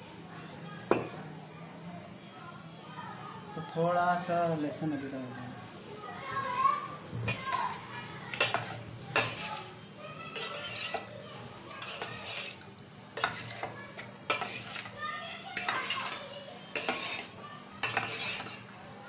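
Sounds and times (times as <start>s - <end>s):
spoon scraping metal bowl: 7.3s - 15.0s, 15.6s - 18.7s.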